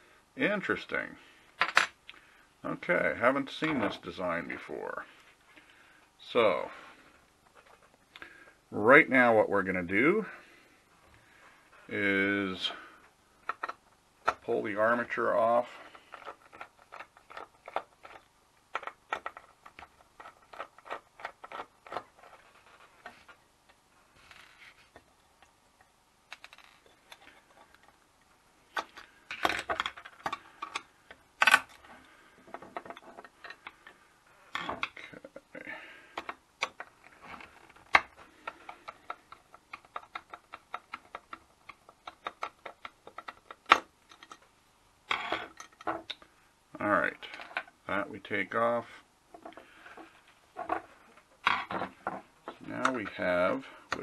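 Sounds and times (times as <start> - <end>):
small metal parts handled: 36.2 - 44.5, 45.1 - 46.2.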